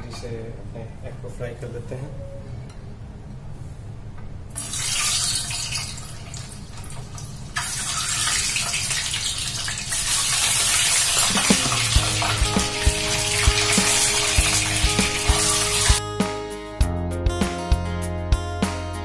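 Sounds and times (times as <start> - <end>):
hot oil sizzling in a frying pan: 4.6 - 16.0
background music with light beat: 11.3 - 19.0.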